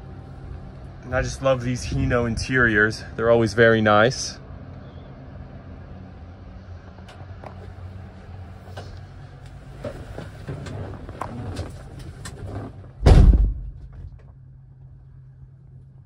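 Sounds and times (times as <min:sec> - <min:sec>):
low steady hum: 0:00.0 - 0:16.0
rustling and clicks of movement: 0:06.9 - 0:13.0
truck cab door shutting: 0:09.7 - 0:14.2.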